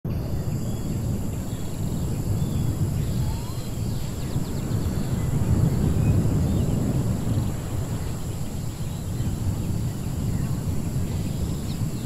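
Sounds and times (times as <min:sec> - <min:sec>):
low wind rumble: 0:00.1 - 0:12.0
faint bird chirps: 0:00.2 - 0:06.9.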